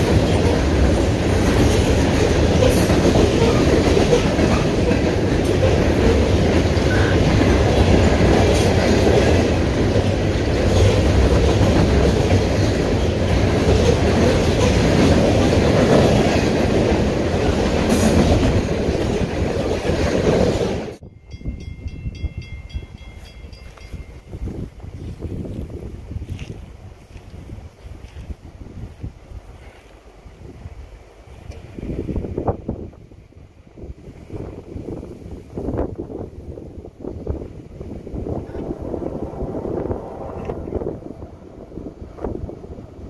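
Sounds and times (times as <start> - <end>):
train wheels on rails: 0.0 - 21.0.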